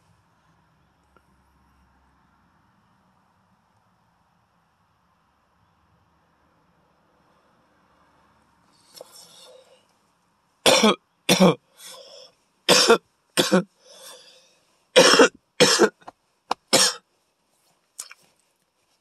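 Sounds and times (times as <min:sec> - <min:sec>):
quiet breaths: 0:00.0 - 0:03.0, 0:06.9 - 0:10.4, 0:11.7 - 0:12.7, 0:13.7 - 0:15.0
man coughing hard: 0:10.7 - 0:11.6, 0:12.7 - 0:13.7, 0:15.0 - 0:16.0, 0:16.6 - 0:17.0.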